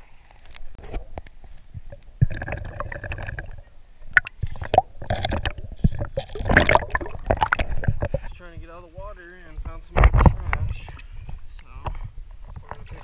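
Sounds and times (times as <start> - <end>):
muffled underwater river gurgling: 0.7 - 9.0
clicks and knocks against camera: 9.6 - 13.0.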